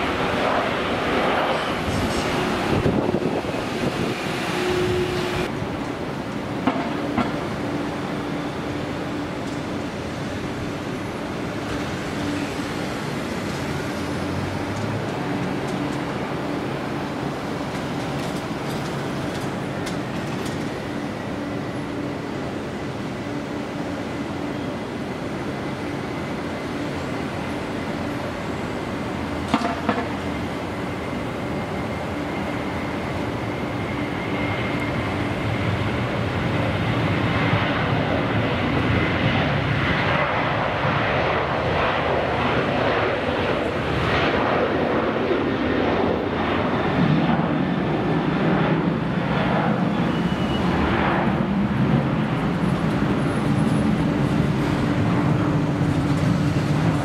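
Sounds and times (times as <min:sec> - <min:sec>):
jet engines rumbling: 0:00.0 - 0:57.0
faint high whine: 0:49.9 - 0:50.9.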